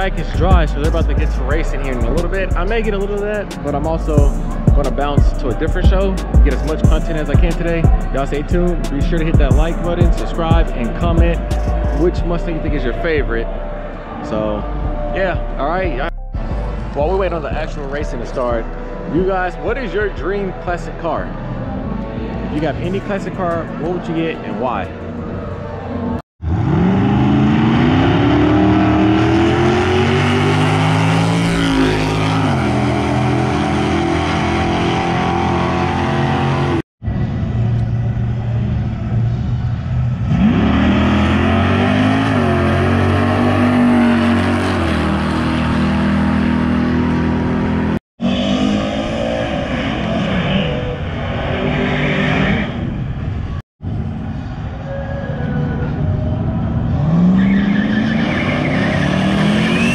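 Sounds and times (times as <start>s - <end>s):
drag cars accelerating: 25.2s - 59.9s.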